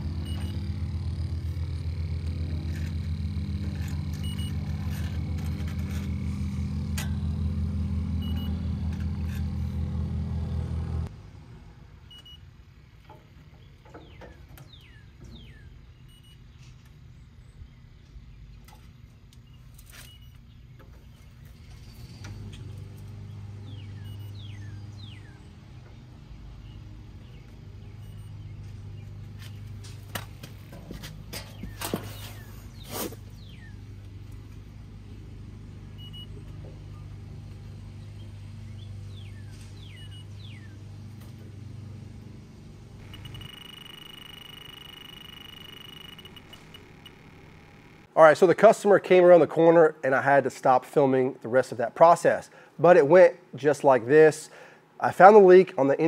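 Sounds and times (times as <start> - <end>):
low machine hum: 0.0 - 48.2
birds chirping: 13.4 - 40.9, 43.0 - 48.1.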